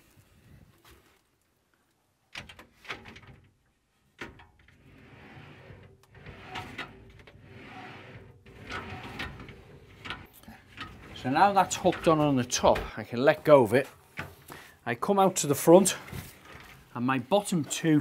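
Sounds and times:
glass door sliding and scraping: 4.2s - 14.5s, 15.2s - 18.0s
wheels clicking on metal rail: 6.0s - 12.8s.

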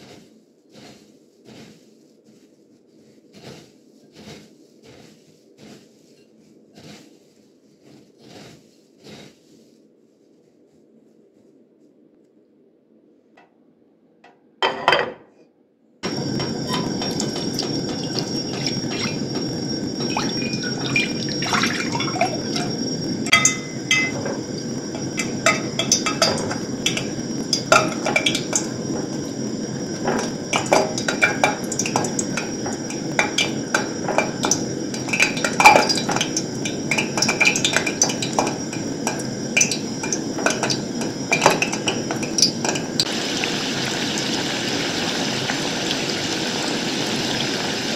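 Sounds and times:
pot clattering on stove: 16.0s - 43.1s
hot oil sizzling and popping: 16.0s - 47.9s.

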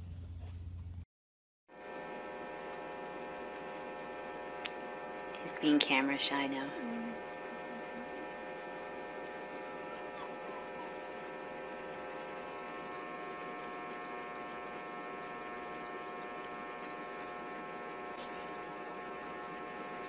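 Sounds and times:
steady electrical hum: 1.8s - 20.0s.

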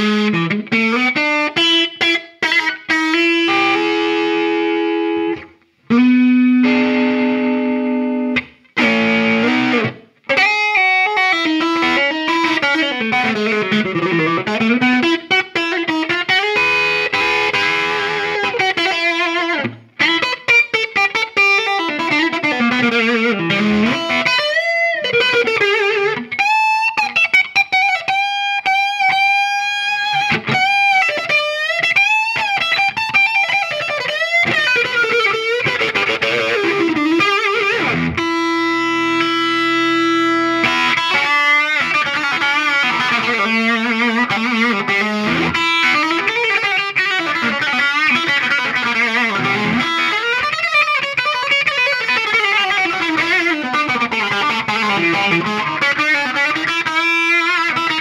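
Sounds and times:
electric guitar lead: 0.0s - 58.0s.

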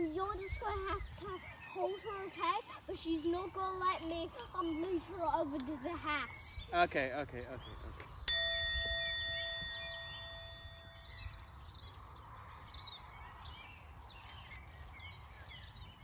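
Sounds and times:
birds chirping: 0.0s - 16.0s
bell-like chime: 8.3s - 11.5s.

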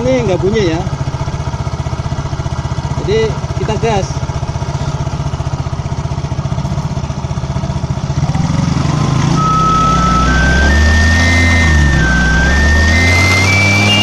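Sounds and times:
scooter engine revving: 0.0s - 14.0s
hose whistling: 9.4s - 14.0s.

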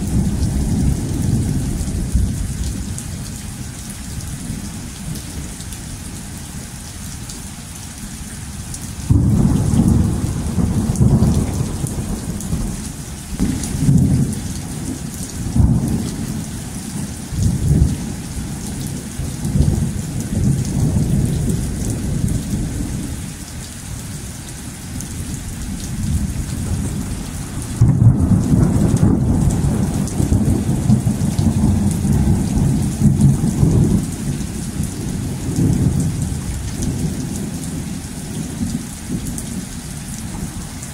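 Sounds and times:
steady rain: 0.0s - 40.9s
thunder rolling: 9.1s - 16.4s, 26.0s - 39.2s.

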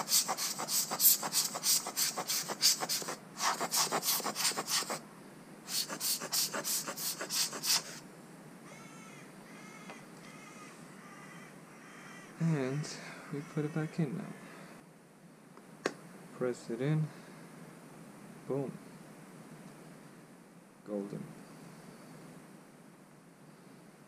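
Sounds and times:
faint high wavering cries: 8.6s - 14.8s.

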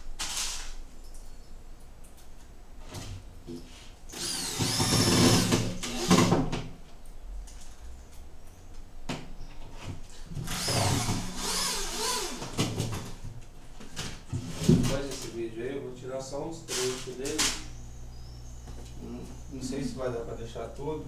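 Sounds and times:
cordless drill motor whine: 4.1s - 6.3s, 10.5s - 12.6s.

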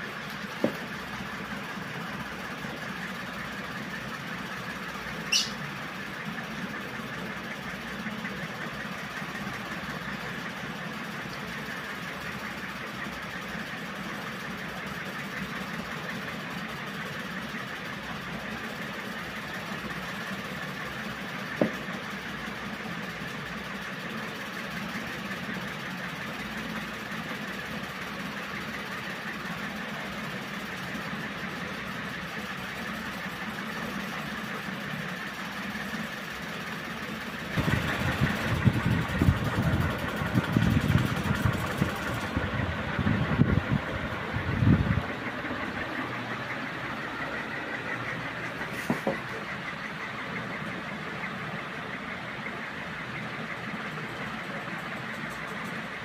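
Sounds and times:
ceiling fan whirring: 0.0s - 56.0s
airflow buffeting microphone: 37.6s - 46.1s.

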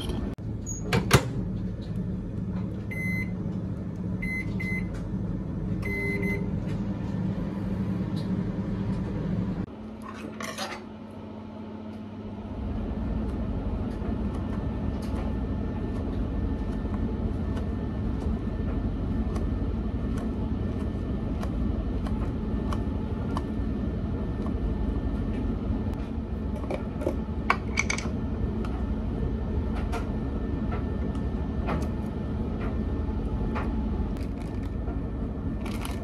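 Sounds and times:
microwave oven humming: 0.0s - 36.0s
microwave keypad beep: 2.9s - 3.4s, 4.2s - 4.9s, 5.8s - 6.6s.

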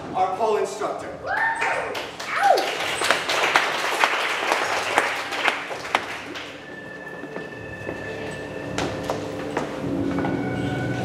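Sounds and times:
audience applauding: 1.6s - 6.8s.

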